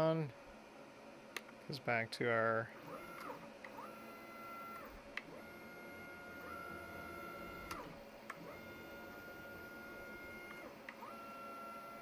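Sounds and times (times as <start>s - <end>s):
stepper motors whining: 2.7s - 12.0s.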